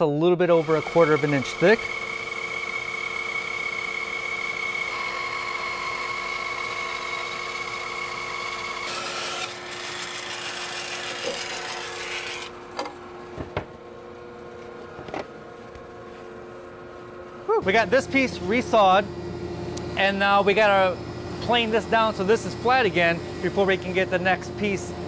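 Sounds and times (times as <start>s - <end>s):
bandsaw hum: 0.4s - 25.0s
blade cutting through wood: 0.6s - 12.6s.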